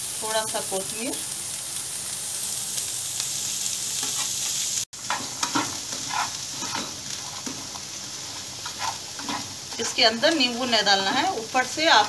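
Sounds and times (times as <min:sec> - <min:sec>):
chickpeas sizzling in oil: 0:00.0 - 0:12.0
spatula scraping pan: 0:05.0 - 0:12.0.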